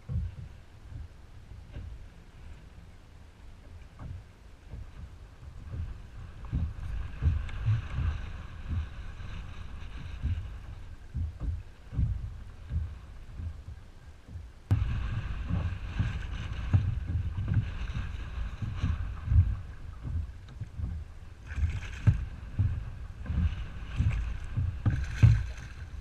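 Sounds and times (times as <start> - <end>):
choppy water: 0.0 - 26.0
wind buffeting microphone: 0.0 - 26.0
wind hiss: 5.2 - 26.0.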